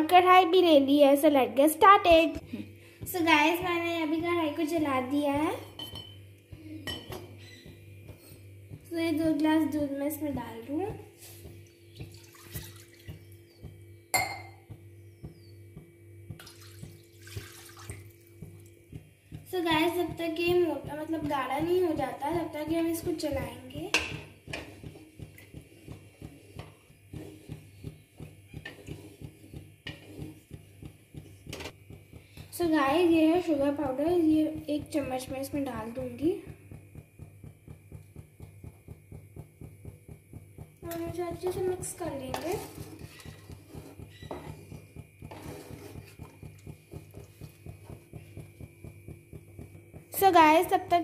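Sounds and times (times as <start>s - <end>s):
low steady hum: 0.0s - 51.0s
spatula knocking on metal: 13.1s - 17.5s, 18.3s - 51.0s
spatula scraping a metal pan: 26.3s - 30.6s, 42.3s - 46.3s.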